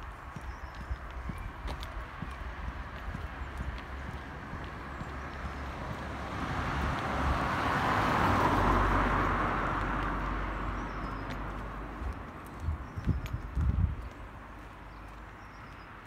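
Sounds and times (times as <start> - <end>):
car passing: 0.0 - 12.8.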